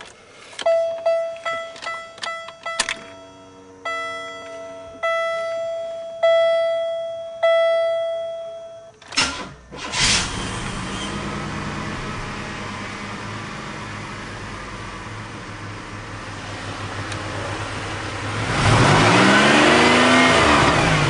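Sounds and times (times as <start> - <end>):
dashboard warning chime: 0.6 - 9.0
car engine cranking and idling: 9.0 - 21.0.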